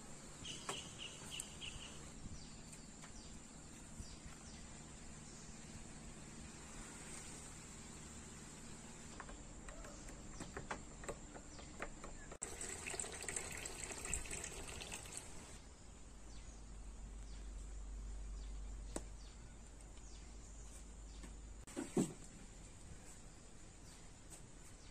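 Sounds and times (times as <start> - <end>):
liquid pouring into glass: 12.4 - 15.5.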